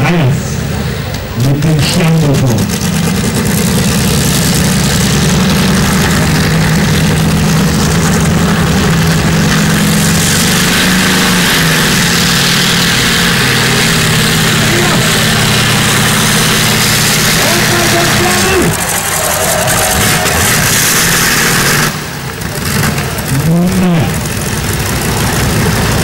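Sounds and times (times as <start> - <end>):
tractor engine running hard: 0.0 - 26.0.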